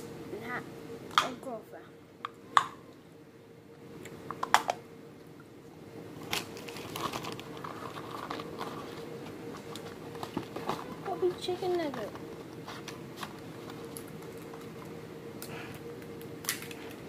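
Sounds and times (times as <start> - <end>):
plastic packaging crinkling: 6.2 - 15.0.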